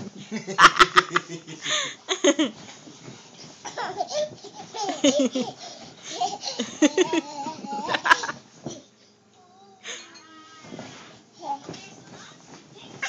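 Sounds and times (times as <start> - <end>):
small child giggling: 3.7 - 8.4.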